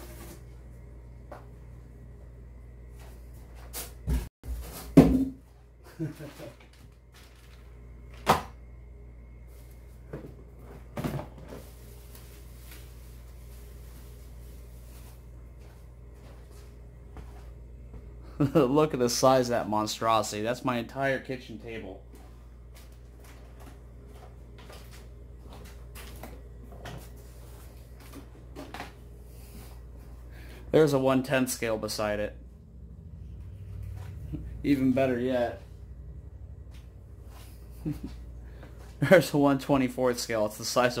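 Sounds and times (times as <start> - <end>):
steady low hum: 0.0 - 41.0
bubble wrap rustling: 6.2 - 7.7.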